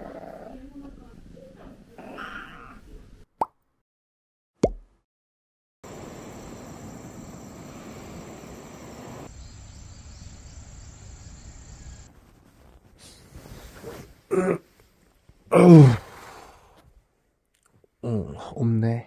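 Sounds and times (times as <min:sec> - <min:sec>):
insect chirring: 0:05.9 - 0:12.1.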